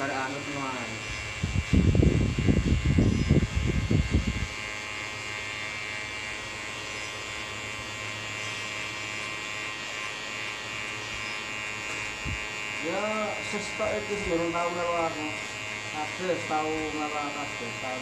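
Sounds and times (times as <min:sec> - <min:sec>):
electric hair clipper buzzing: 0:00.0 - 0:18.0.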